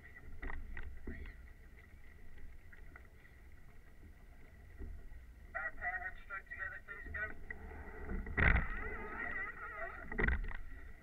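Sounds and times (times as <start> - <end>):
water washing along boat bow: 0.0 - 11.0.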